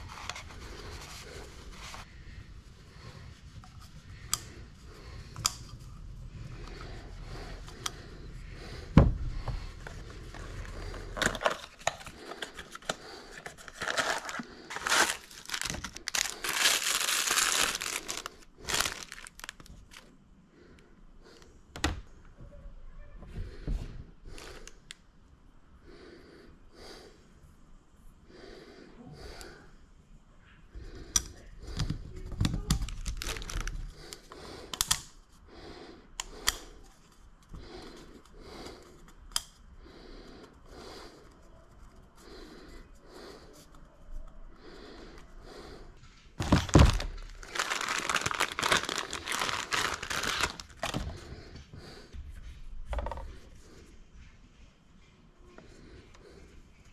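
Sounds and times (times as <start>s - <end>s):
plastic packaging crinkling: 10.5s - 20.0s, 32.8s - 33.9s, 46.4s - 51.1s.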